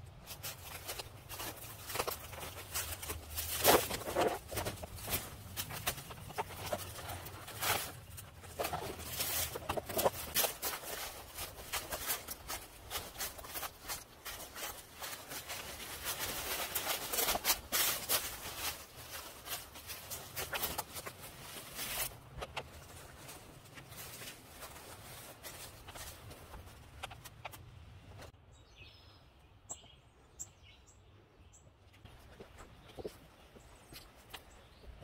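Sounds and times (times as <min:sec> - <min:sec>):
footsteps through leafy undergrowth: 0:00.2 - 0:27.1.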